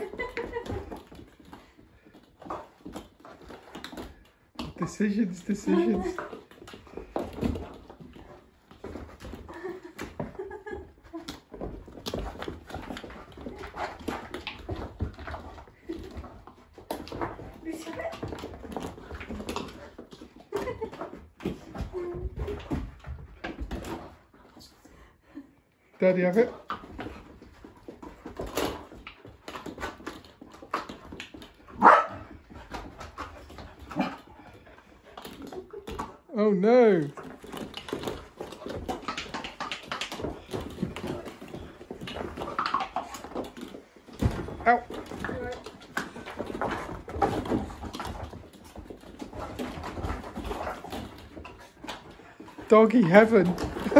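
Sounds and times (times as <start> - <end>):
plastic balls and paws rattling: 0.0 - 25.0, 25.9 - 53.9
plastic balls clicking and knocking: 37.0 - 53.9.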